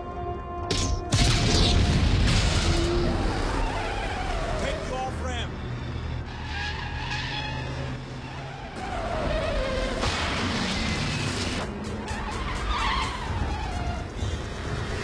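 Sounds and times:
truck engines running hard: 2.2 - 15.0
tyres skidding: 2.4 - 15.0
falling tyre squeal: 2.5 - 4.8, 6.3 - 14.8.

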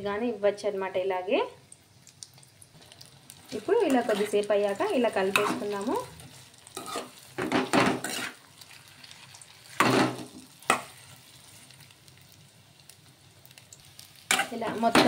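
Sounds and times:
oil sizzling: 0.6 - 15.0
metal spoon scraping a pan: 3.5 - 11.2, 14.2 - 15.0.

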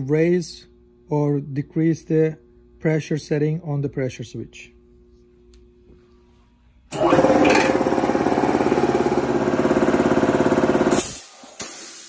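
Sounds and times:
air compressor pulsing: 6.9 - 12.0.

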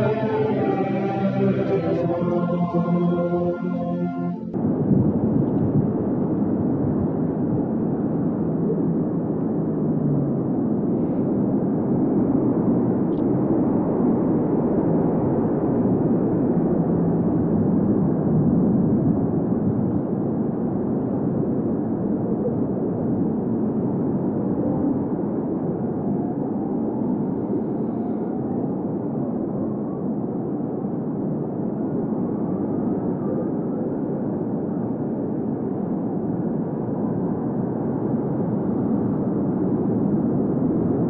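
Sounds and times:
choir singing: 0.0 - 4.6.

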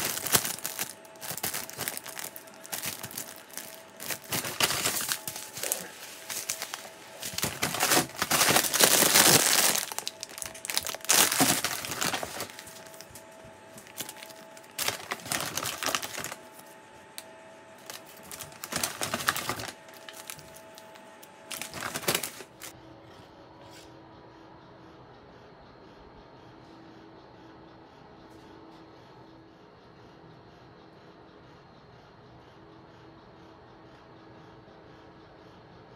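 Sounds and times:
paper and plastic packaging crinkling: 0.0 - 16.8, 17.8 - 22.7.

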